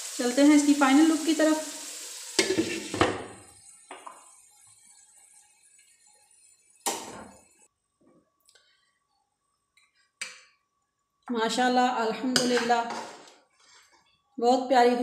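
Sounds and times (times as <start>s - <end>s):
sizzling in a wok: 0.0s - 7.7s.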